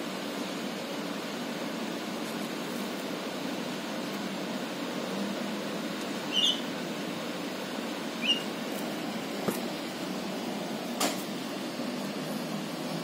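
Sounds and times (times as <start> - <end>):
bird chirps: 6.3 - 6.6, 8.2 - 8.5.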